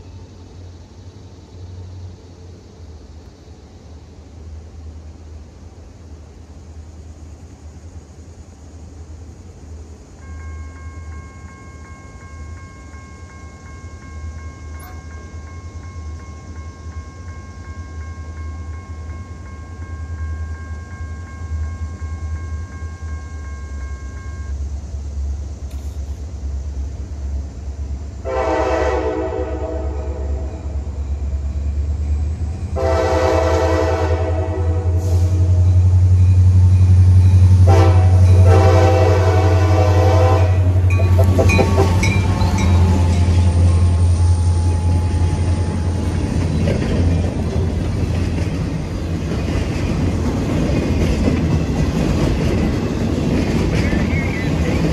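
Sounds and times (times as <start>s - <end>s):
diesel locomotive engine rumble: 0.0s - 54.9s
locomotive air horn blasts: 28.2s - 30.8s, 32.8s - 35.7s, 37.6s - 46.1s.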